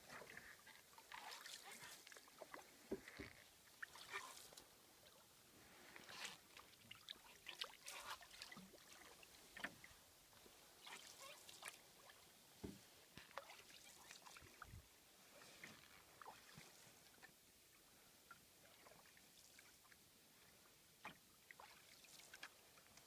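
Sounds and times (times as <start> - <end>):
canoe paddle splashing water: 0.0 - 5.2, 5.8 - 14.8, 21.0 - 22.6.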